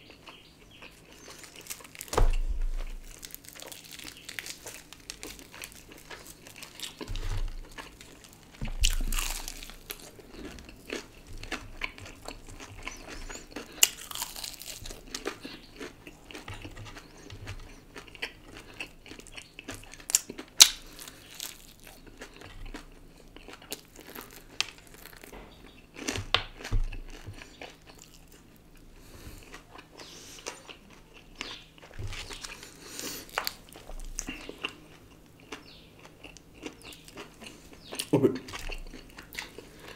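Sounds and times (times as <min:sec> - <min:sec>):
chewing: 0:00.0 - 0:39.9
crunchy bites into fried chicken: 0:00.1 - 0:39.9
sharp crackles: 0:01.1 - 0:10.1.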